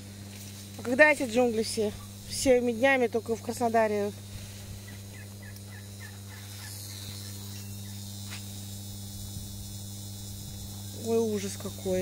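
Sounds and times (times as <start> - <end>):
electric water pump humming: 0.0 - 12.0
bird chirping: 4.9 - 8.0.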